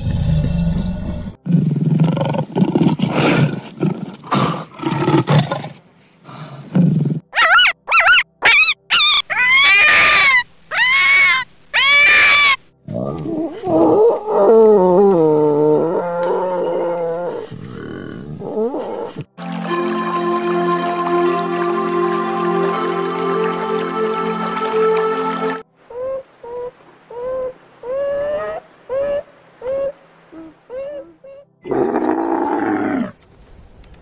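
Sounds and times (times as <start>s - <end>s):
leopard growling and roaring: 0.0s - 7.3s, 12.9s - 19.3s, 31.6s - 33.2s
fox yelping and screaming: 7.3s - 15.2s.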